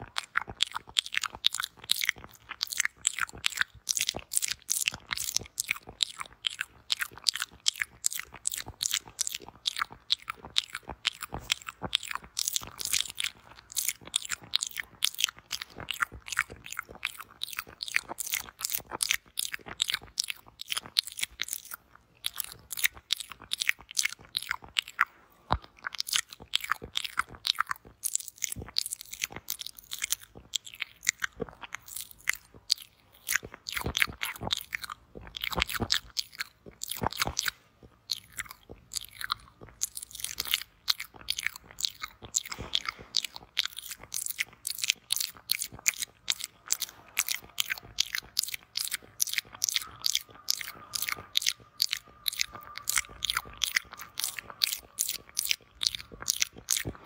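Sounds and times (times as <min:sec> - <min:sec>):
wet mouth clicks: 0:00.0 - 0:57.0
mouth sucking noises: 0:31.0 - 0:57.0.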